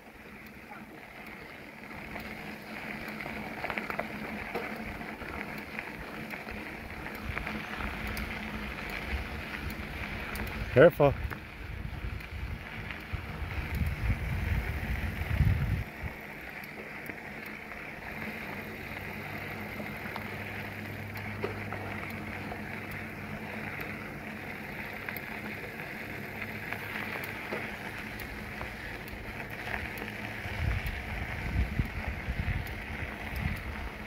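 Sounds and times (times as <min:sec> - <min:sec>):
bicycle tyres rolling: 0:00.0 - 0:34.0
small ticks: 0:00.0 - 0:34.0
wind buffeting microphone: 0:06.9 - 0:16.2, 0:30.4 - 0:34.0.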